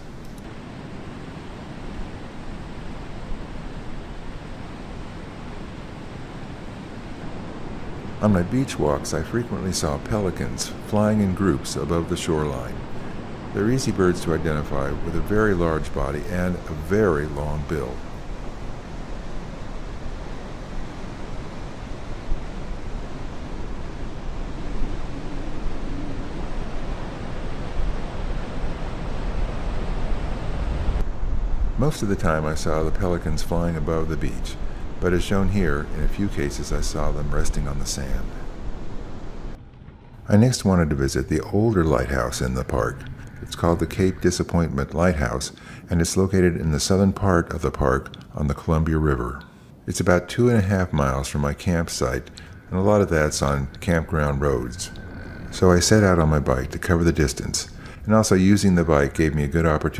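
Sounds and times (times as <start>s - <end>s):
ocean surf breaking: 0.0s - 47.9s, 50.3s - 59.9s
wind rumble on microphone: 0.0s - 49.4s, 50.4s - 59.9s.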